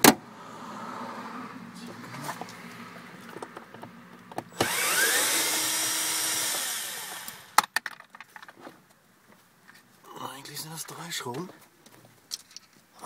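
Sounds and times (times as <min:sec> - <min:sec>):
cordless screwdriver whining: 0:04.5 - 0:07.6.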